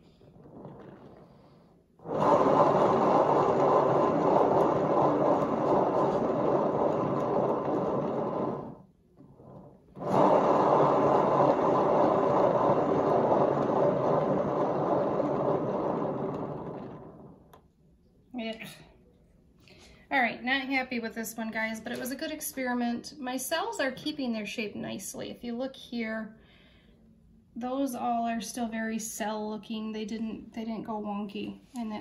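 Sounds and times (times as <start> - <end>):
turntable rolling rumble: 0.0 - 17.6.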